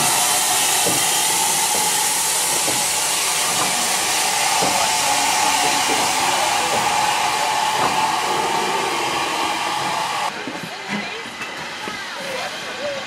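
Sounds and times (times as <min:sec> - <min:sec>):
steam locomotive hissing: 0:00.0 - 0:10.6.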